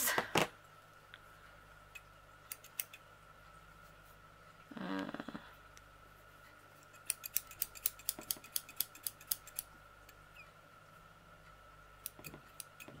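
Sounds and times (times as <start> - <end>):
scissors clicking: 1.9 - 3.0, 6.8 - 9.7, 12.0 - 13.0.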